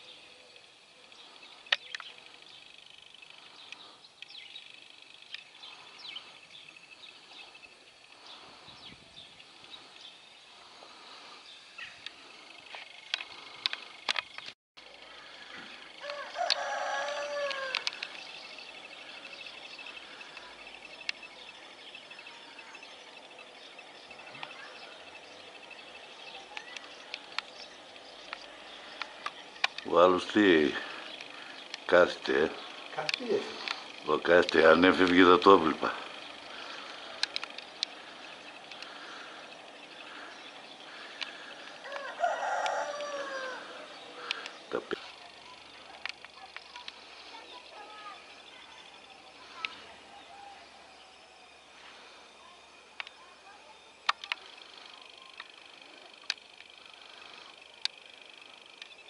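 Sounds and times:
sharp clicks: 1.1 - 2.2, 12.0 - 14.6, 16.1 - 18.3, 26.5 - 29.9, 31.0 - 31.9, 32.7 - 39.6, 40.5 - 43.1, 44.1 - 45.2, 45.9 - 47.2, 54.0 - 59.0
rooster crowing: 15.8 - 18.0, 41.7 - 44.0.

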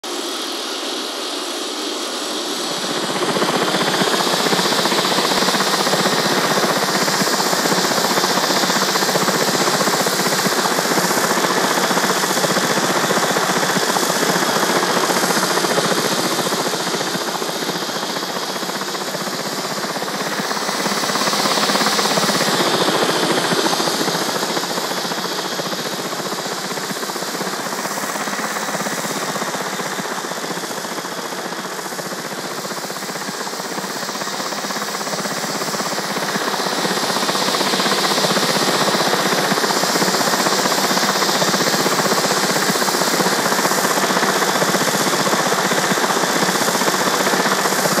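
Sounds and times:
model helicopter motor and rotors: 0.0 - 48.0.

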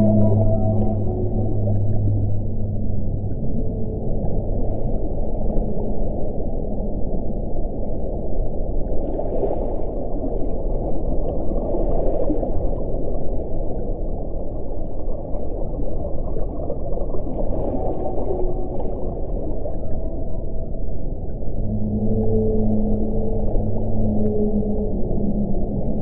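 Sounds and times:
whale calls underwater: 0.0 - 8.1, 15.2 - 26.0
underwater sea noise: 0.0 - 26.0.

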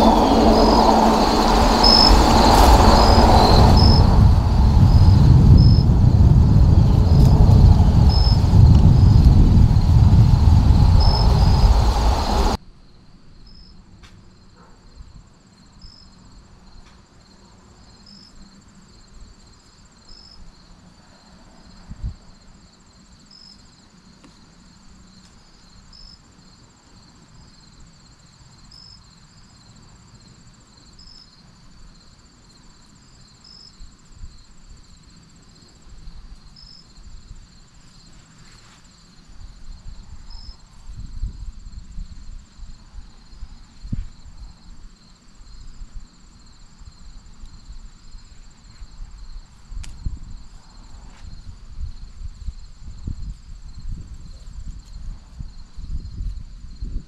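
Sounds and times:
crickets trilling: 0.0 - 13.8, 15.5 - 57.0.

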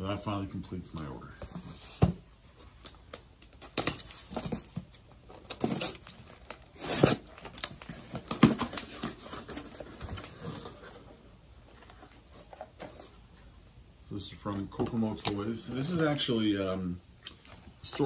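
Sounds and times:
cardboard tearing and rustling: 3.6 - 13.1.

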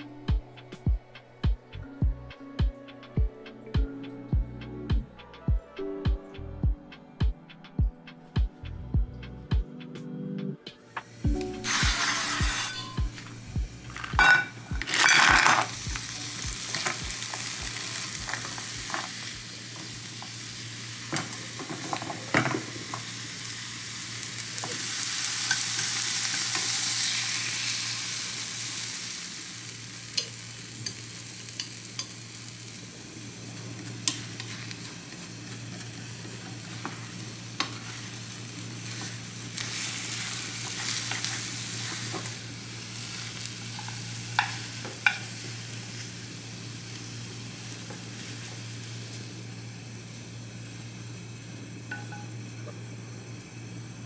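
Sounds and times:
food sizzling in oil: 11.4 - 53.9
chopsticks scraping a pan: 11.6 - 13.2, 38.8 - 42.3.

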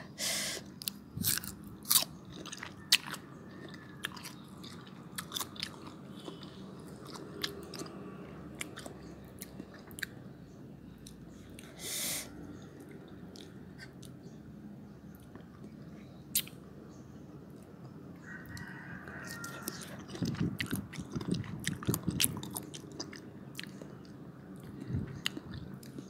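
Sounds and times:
mango crunching bites: 0.8 - 8.0, 16.3 - 16.6
chewing clicks: 8.6 - 10.2, 12.8 - 14.2, 15.1 - 16.6, 17.6 - 26.0.

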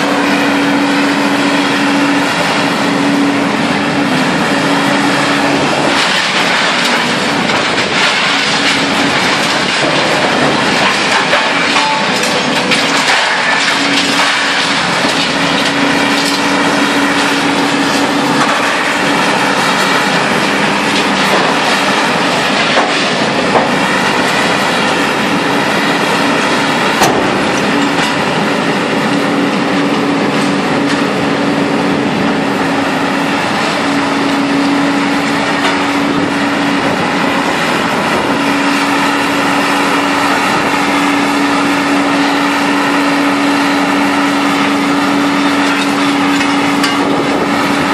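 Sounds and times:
heavy machinery droning: 0.0 - 47.9
scrap metal clanking: 5.6 - 24.8.

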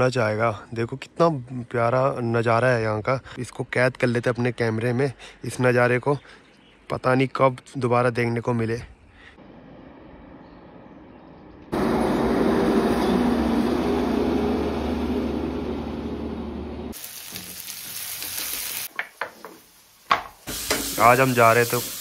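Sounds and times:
food sizzling in a pan: 16.9 - 22.0
spatula knocking in pan: 18.9 - 20.9.

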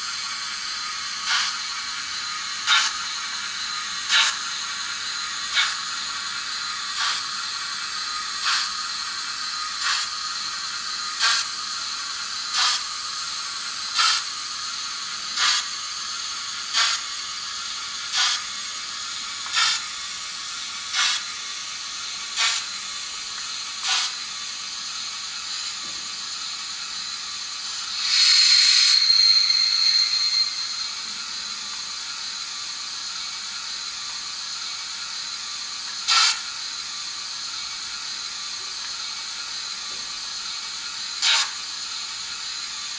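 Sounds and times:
steam hiss: 0.0 - 42.9
model locomotive clicks: 0.2 - 42.9.

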